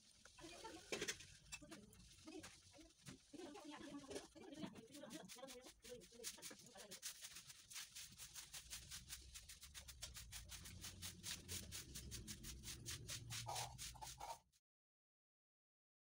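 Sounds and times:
marker scratching on paper: 4.7s - 14.5s.

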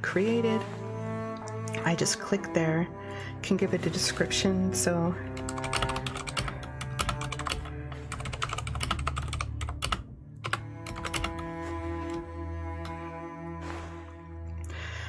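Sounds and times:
background music: 0.0s - 15.0s
keyboard typing: 5.4s - 12.2s.

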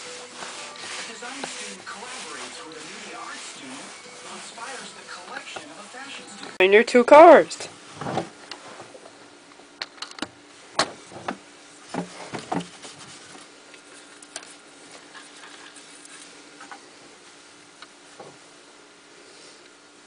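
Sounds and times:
towel rubbing: 0.0s - 6.4s.

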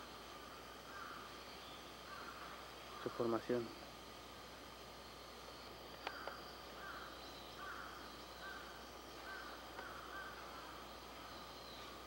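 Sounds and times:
faint outdoor ambience: 0.0s - 12.0s
bird calling: 0.8s - 3.9s, 5.9s - 12.0s
faint clicks: 5.9s - 6.4s, 9.7s - 10.0s.

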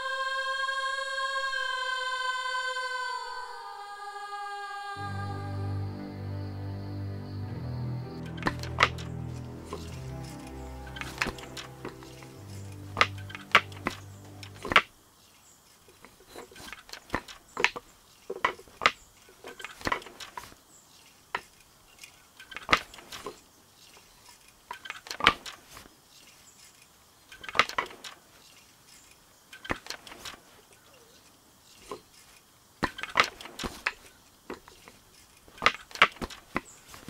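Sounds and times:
music: 5.0s - 14.8s.

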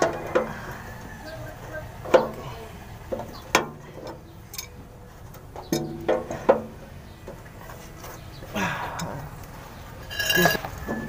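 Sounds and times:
wrench clinking on metal: 10.1s - 11.0s.

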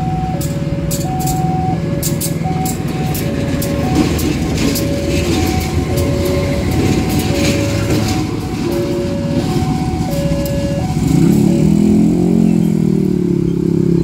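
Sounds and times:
crossing alarm ding-dong: 0.0s - 12.8s
wheels clicking over rails: 0.0s - 13.7s
locomotive engine rumbling: 0.0s - 14.0s.

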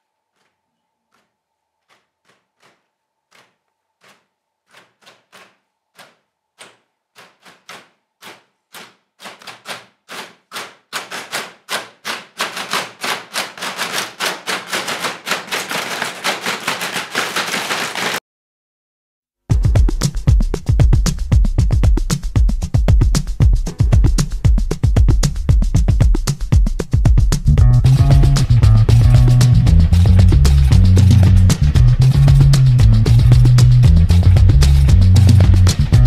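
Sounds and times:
hands slapping a floor mat: 1.8s - 18.2s.

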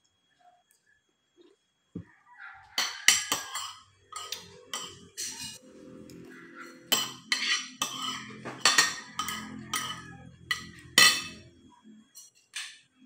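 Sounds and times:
cutlery clinking on a ceramic plate: 2.8s - 11.5s.

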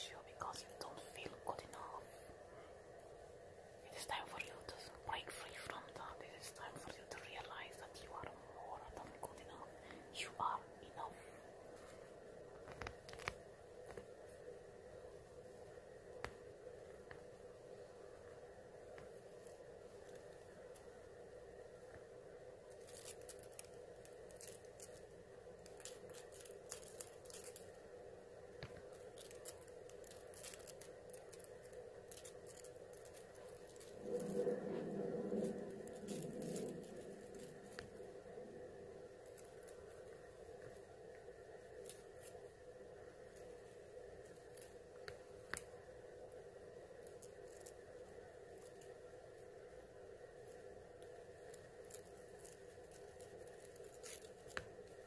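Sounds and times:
low steady hum: 0.0s - 55.0s
claws scratching through hair: 22.6s - 45.8s, 50.3s - 55.0s.

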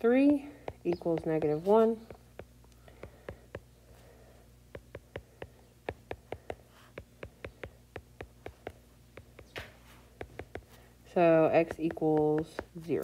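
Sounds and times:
stylus tapping on glass screen: 4.7s - 10.7s.

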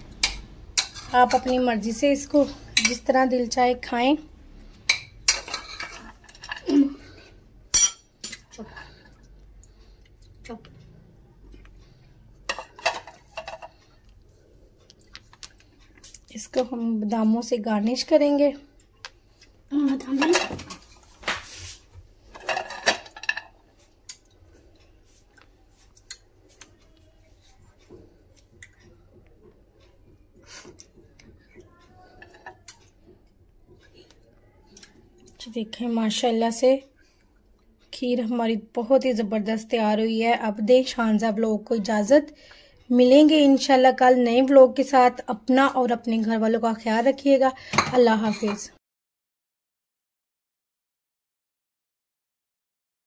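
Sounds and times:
utensils and dishes clinking: 4.9s - 6.9s, 7.7s - 9.1s, 12.4s - 13.8s, 22.3s - 23.6s.

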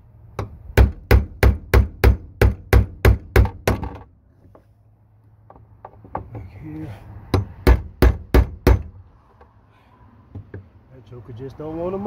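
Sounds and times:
hammer striking chisel: 0.4s - 4.0s, 7.3s - 8.9s.

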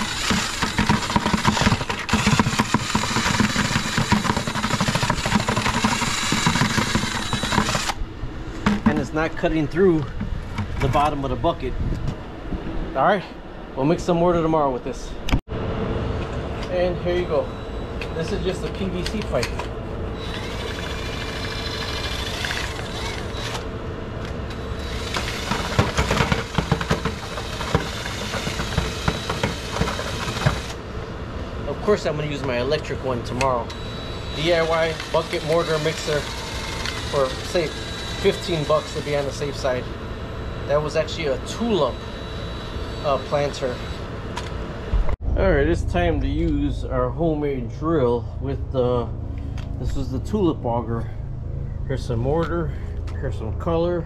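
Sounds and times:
cordless drill running: 0.0s - 8.0s, 20.2s - 23.7s, 24.5s - 30.8s, 33.7s - 44.1s
mixer scraping bucket bottom: 0.0s - 8.0s, 8.6s - 9.3s, 25.0s - 30.8s
auger knocking against bucket: 8.6s - 9.1s, 25.5s - 30.6s.

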